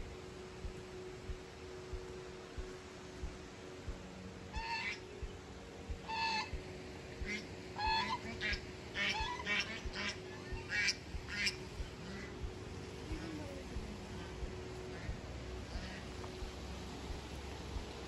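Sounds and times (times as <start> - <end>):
large bird honking: 4.5 - 5.0, 6.0 - 6.6, 7.3 - 12.4.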